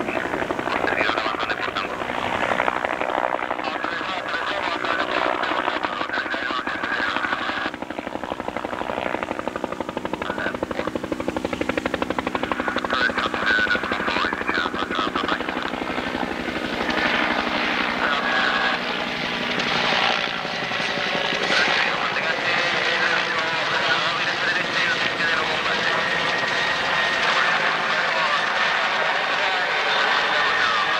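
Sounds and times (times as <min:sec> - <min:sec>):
helicopter rotor beating: 0:00.0 - 0:30.9
turbine engine whine: 0:00.0 - 0:30.9.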